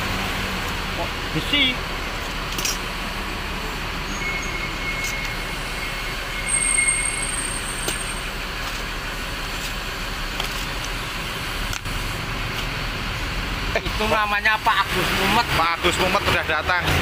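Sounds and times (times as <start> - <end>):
thin high squeal: 4.1 - 8.2.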